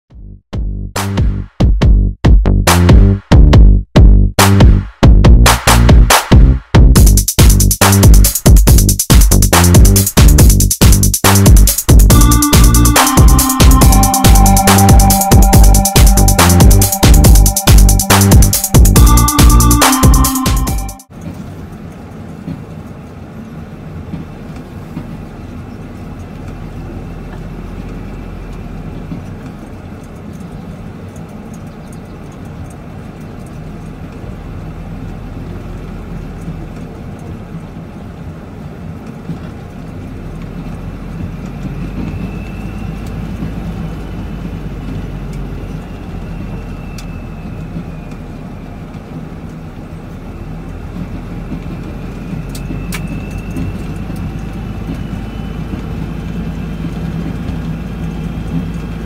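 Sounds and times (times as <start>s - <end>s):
truck engine drone: 0.1s - 59.0s
road noise on gravel: 21.1s - 59.0s.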